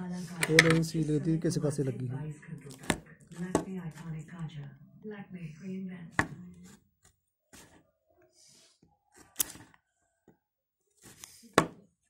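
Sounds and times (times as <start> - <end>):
scissors snipping cardboard: 9.1 - 9.8.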